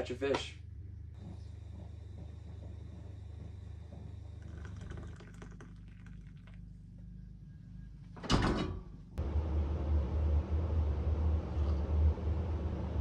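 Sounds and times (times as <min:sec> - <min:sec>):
steady low hum: 0:00.0 - 0:13.0
coffee pouring into a mug: 0:03.9 - 0:06.7.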